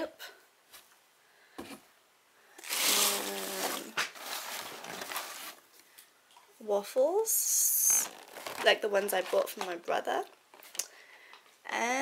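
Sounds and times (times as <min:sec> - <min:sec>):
hands rustling shredded paper: 0:02.6 - 0:05.6.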